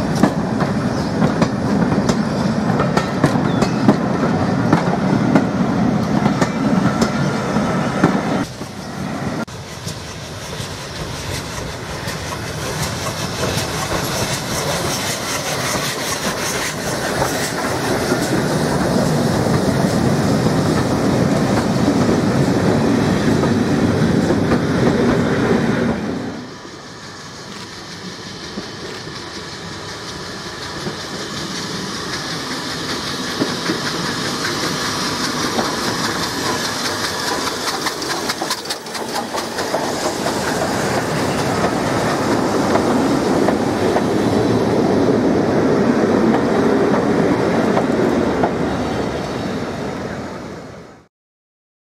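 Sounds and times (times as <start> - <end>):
steam train passing: 0.0 - 51.1
wheels clattering over rail joints: 30.1 - 44.2.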